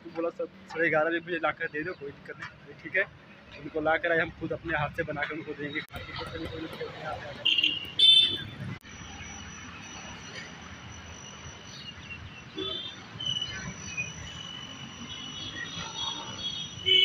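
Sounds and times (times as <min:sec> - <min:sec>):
high-pitched insect trill: 0:08.8 - 0:16.8.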